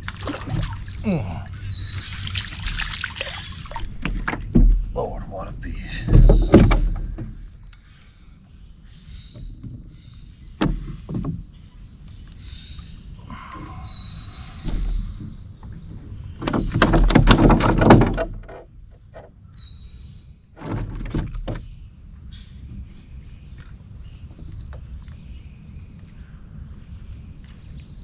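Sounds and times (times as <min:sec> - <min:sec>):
birds chirping: 0:00.0 - 0:28.0
gear knocking in a boat: 0:03.7 - 0:07.6, 0:09.3 - 0:11.7, 0:14.6 - 0:19.4, 0:20.6 - 0:21.8.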